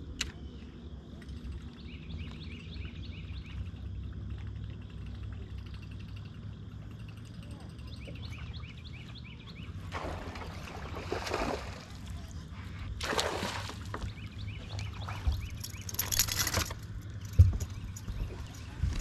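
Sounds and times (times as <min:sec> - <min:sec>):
fish splashing at water surface: 0:09.9 - 0:12.2, 0:13.0 - 0:14.1.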